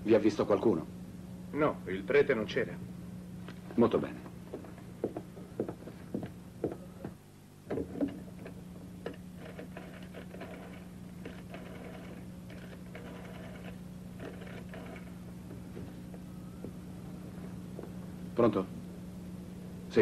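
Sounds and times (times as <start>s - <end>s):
steady low hum: 0.0s - 20.0s
phone dialling clicks: 8.4s - 15.1s.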